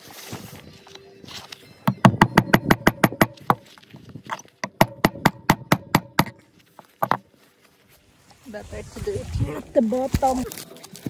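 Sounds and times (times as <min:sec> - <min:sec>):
hammer tapping nail into wood: 0:01.9 - 0:03.6, 0:04.6 - 0:06.4, 0:07.0 - 0:07.2.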